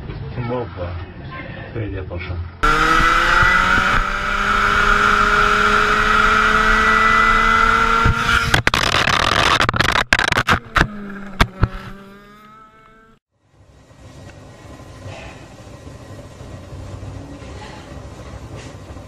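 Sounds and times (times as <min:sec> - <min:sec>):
go-kart engine revving: 0:02.6 - 0:13.2.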